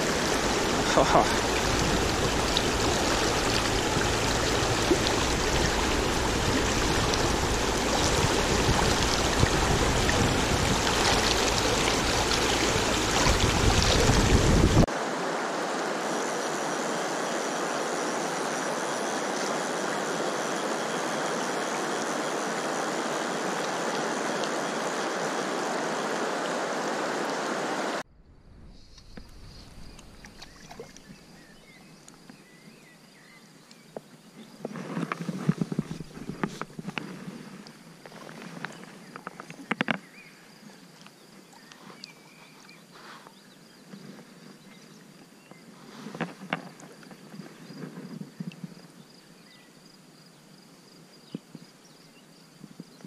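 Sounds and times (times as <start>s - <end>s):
rushing river water: 0.0s - 32.9s, 34.9s - 42.9s.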